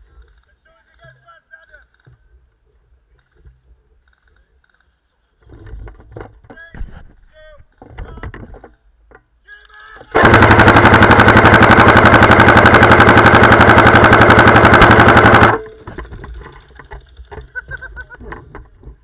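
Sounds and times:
airsoft gun full-auto rattle: 10.0s - 17.5s.

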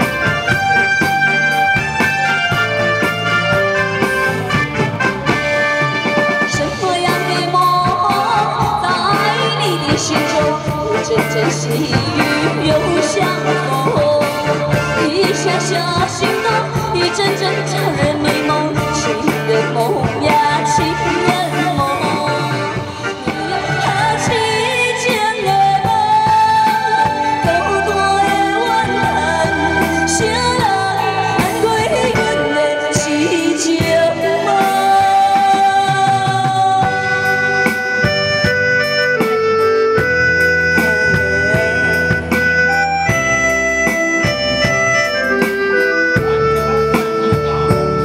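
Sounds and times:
band accompaniment: 0.0s - 48.0s
woman singing a pop song: 6.5s - 37.4s.

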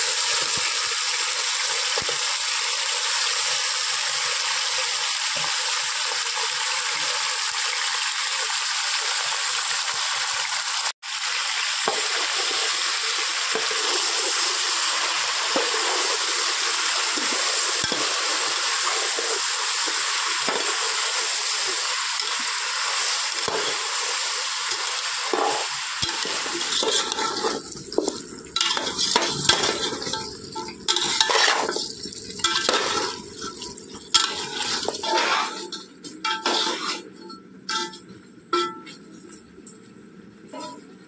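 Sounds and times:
chicken frying: 0.0s - 37.0s
ladle scraping pot: 25.3s - 39.0s.

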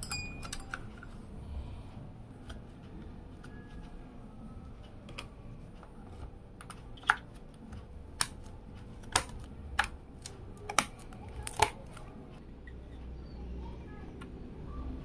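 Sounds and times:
memory sticks clicking into slots: 6.6s - 12.2s.

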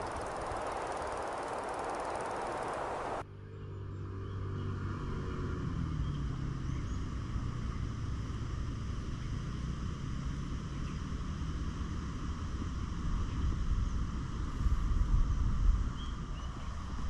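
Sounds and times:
faint hum: 0.0s - 3.2s
gusty wind buffeting microphone: 0.0s - 3.2s
low steady rumble: 0.0s - 3.2s
wind rushing on microphone: 0.0s - 3.2s, 12.6s - 17.0s.

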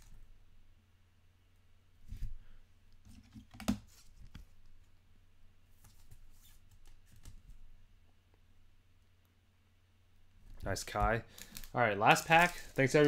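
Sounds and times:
plastic sleeve crinkling: 10.6s - 13.0s.

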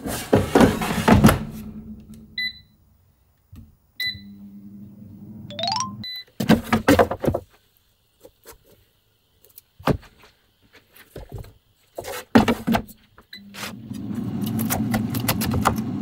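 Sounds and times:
low steady hum: 1.4s - 6.2s.

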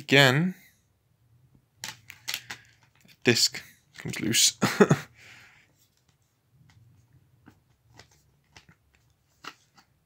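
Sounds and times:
plastic disc case clicks: 1.8s - 3.0s.

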